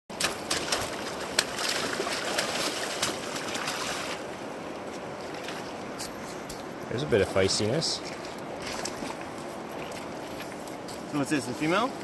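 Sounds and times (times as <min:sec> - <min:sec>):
fish splashing in net: 0:00.1 - 0:04.2
river rushing: 0:00.1 - 0:12.0.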